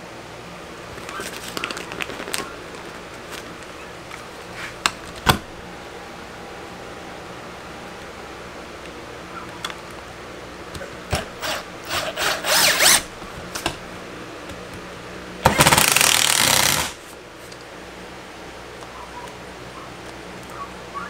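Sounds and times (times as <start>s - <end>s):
cordless drill driving screws: 11.2s - 13.1s, 15.7s - 17.0s.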